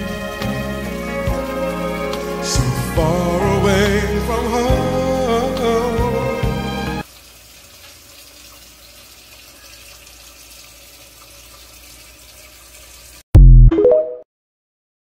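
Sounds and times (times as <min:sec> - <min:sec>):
song with singing: 0:02.4 - 0:06.8.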